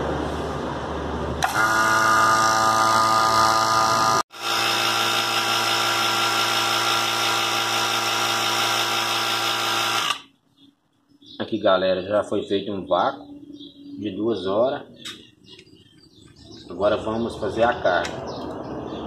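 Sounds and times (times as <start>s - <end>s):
vacuum pump humming: 1.4s - 10.2s.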